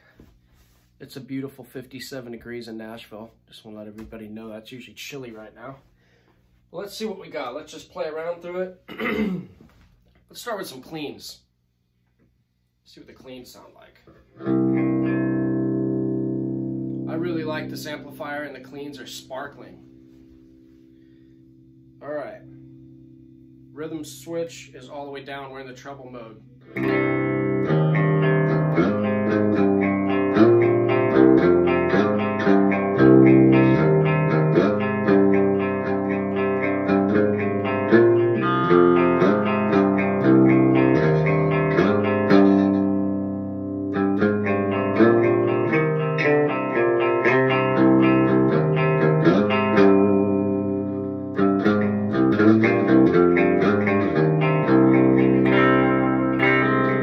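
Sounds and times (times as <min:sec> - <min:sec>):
clean electric guitar chords: 0:14.4 - 0:24.3, 0:26.2 - 0:57.0.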